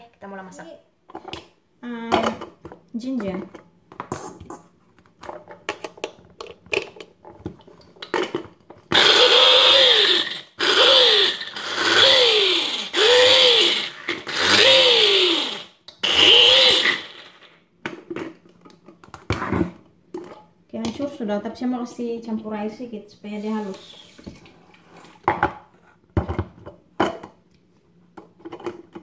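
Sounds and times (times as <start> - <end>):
food chopper motor whirring: 8.9 - 17.5.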